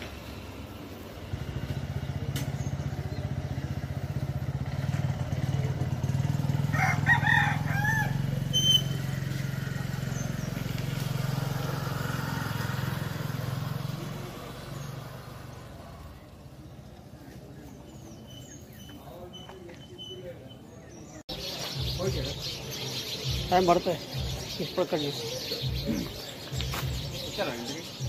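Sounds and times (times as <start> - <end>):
motorcycle engine running: 0.0 - 17.3
rooster crowing: 6.6 - 8.5.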